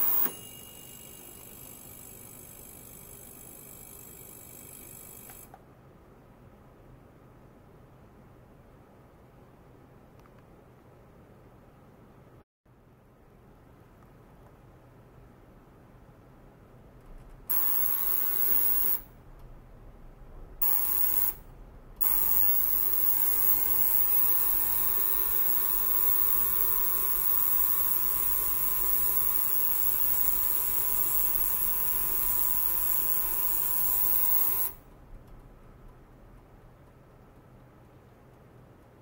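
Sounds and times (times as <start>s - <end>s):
ultrasonic cleaner buzzing hiss: 0.0s - 2.2s, 17.5s - 19.0s, 22.0s - 34.8s.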